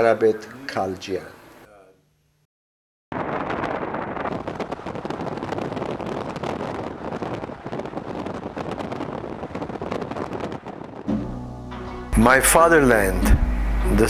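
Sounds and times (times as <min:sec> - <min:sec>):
wind buffeting microphone: 0:03.2 - 0:11.1
vehicle road noise: 0:12.1 - 0:14.0.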